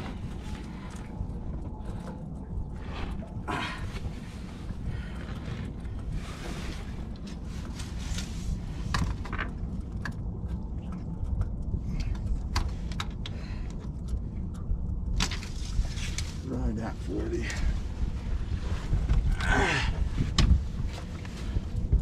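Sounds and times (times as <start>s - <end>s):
clicks and light knocks: 0.0s - 16.4s
steady low rumble: 0.0s - 22.0s.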